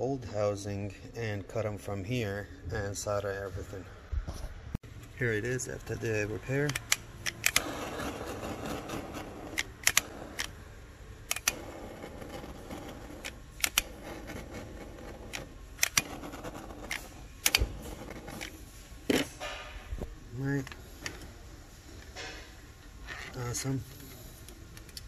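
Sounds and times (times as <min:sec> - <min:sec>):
torch flame hissing: 0:07.5 - 0:10.4.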